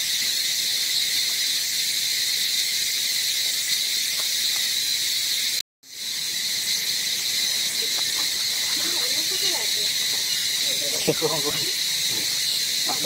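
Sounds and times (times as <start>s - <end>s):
high-pitched insect chorus: 0.0s - 13.0s.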